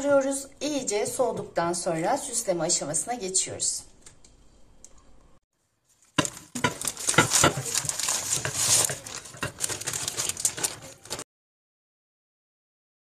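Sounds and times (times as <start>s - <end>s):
baking paper crinkling: 5.8s - 11.3s.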